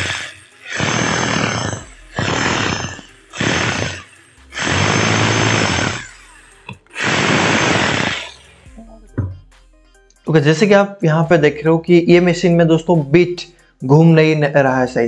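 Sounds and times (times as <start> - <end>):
hammer drill running: 0.0 - 8.6.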